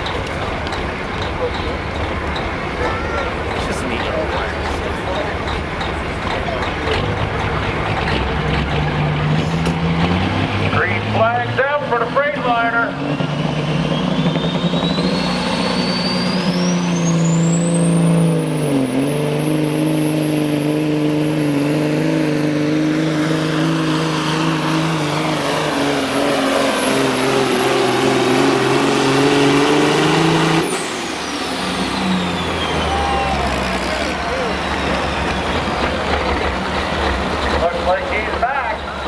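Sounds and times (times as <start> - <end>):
diesel truck engine at full power: 0.0 - 39.0
turbo whistle: 13.8 - 18.1.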